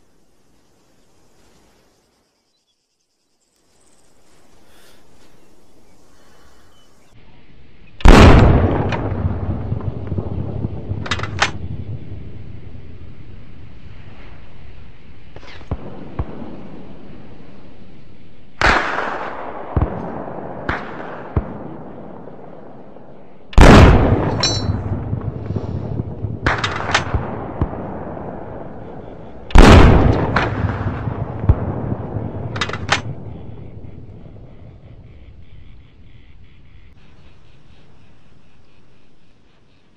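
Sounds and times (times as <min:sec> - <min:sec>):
sharp gunshot cracks: 0:08.0 - 0:09.5, 0:18.6 - 0:21.7, 0:23.6 - 0:25.0, 0:29.5 - 0:33.2
heavy gunshots with echo: 0:08.0 - 0:11.6, 0:23.6 - 0:34.5.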